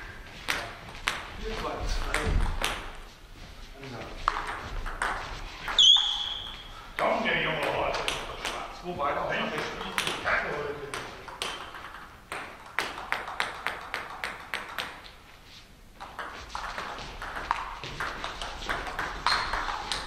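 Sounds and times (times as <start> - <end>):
table tennis ball knocking: 2.0 - 3.0, 4.2 - 8.7, 9.6 - 10.3, 10.9 - 15.2, 16.0 - 20.0.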